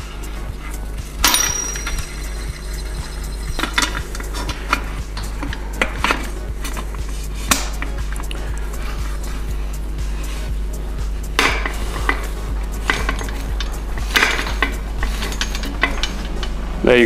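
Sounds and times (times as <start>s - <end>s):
bearing press metal clicks and scrapes: 1.1s - 9.5s, 11.3s - 16.6s
sharp metal clink: 1.2s - 4.6s.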